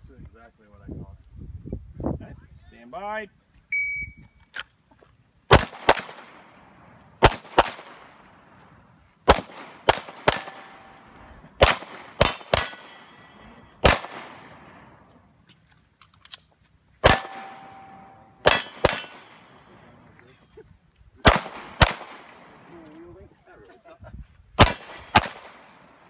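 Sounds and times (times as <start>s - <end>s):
pistol shots with echo: 5.5s - 8.3s, 9.3s - 15.0s, 17.0s - 19.8s, 21.2s - 22.8s, 24.6s - 26.0s.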